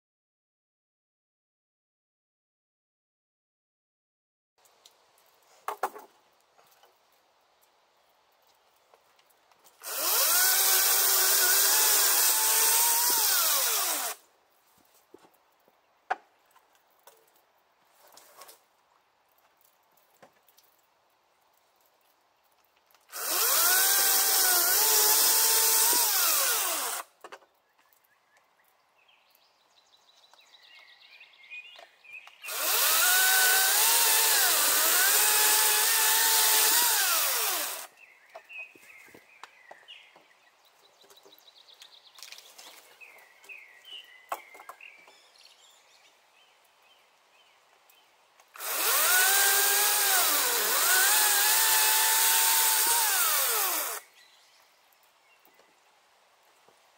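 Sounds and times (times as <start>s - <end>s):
electric chainsaw cutting logs: 9.8s - 14.2s, 23.1s - 27.1s, 32.4s - 37.9s, 48.5s - 54.1s.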